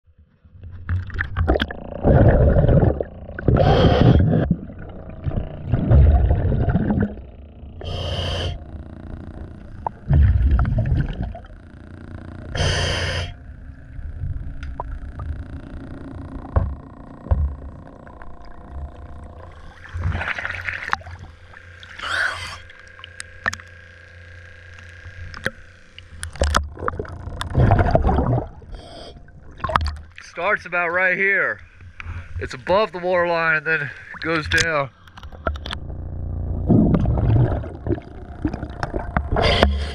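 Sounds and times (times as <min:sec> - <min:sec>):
bubbling exhales: 0:01.2 - 0:08.6, 0:09.9 - 0:11.5, 0:26.7 - 0:29.9, 0:36.6 - 0:39.9
regulator hissing inhales: 0:07.8 - 0:08.6, 0:12.6 - 0:13.4, 0:39.3 - 0:39.9.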